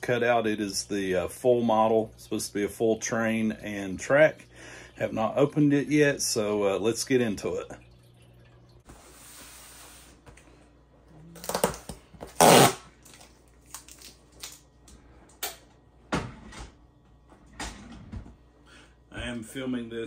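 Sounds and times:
packing tape ripping: 0:11.4 - 0:14.6.

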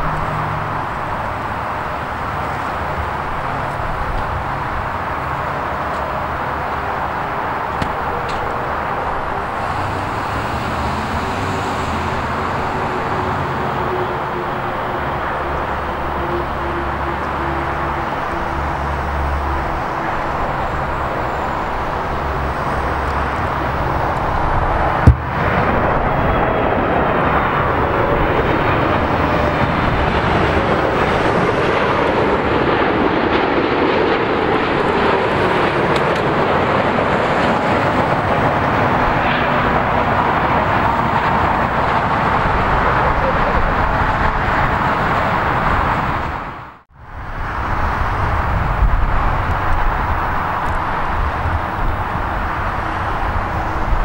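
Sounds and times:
jet airliner rushing noise: 0:00.0 - 0:54.0
sharp knock: 0:25.0 - 0:25.4.

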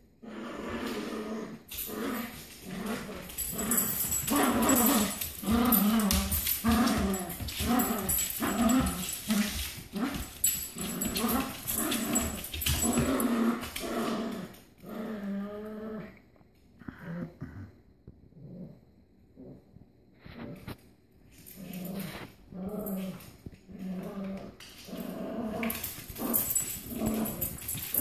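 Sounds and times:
dogs growling in play: 0:00.0 - 0:20.8, 0:21.4 - 0:28.0.

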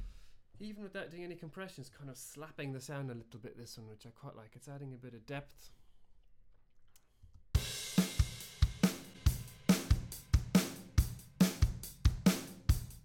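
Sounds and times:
drum loop kick and snare: 0:07.6 - 0:13.0.

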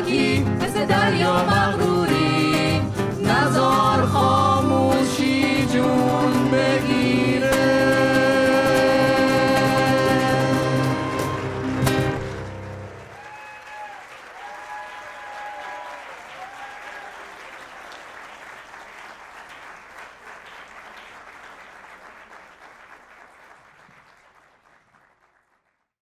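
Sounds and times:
audience applauding: 0:07.6 - 0:25.9
voices cheering: 0:13.0 - 0:18.1.

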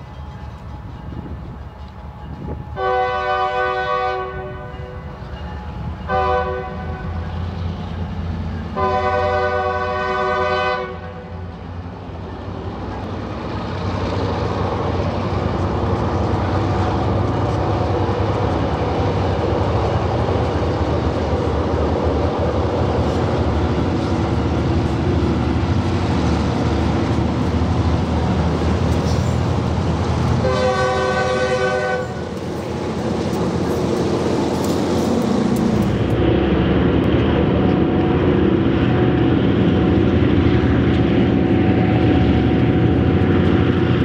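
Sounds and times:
diesel locomotives passing: 0:00.0 - 0:44.0
locomotive air horn blast: 0:02.8 - 0:05.2, 0:06.1 - 0:07.2, 0:08.8 - 0:11.4, 0:30.4 - 0:32.3.

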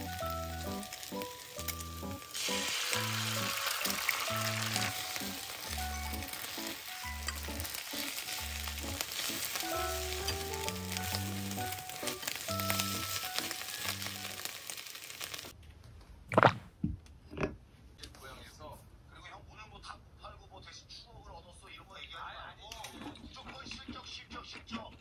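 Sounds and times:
background music: 0:00.0 - 0:14.9
food sizzling in a frying pan: 0:00.0 - 0:15.6.

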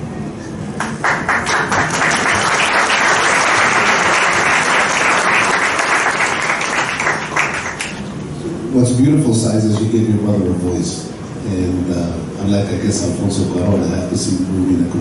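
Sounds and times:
crowd applauding: 0:00.8 - 0:08.0.

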